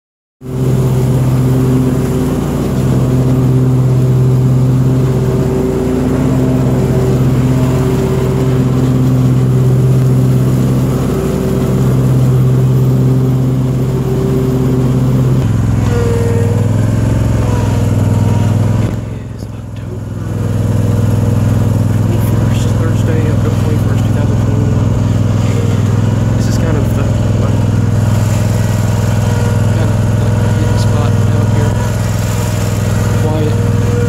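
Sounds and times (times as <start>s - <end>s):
lawn mower engine drone: 0.4s - 34.0s.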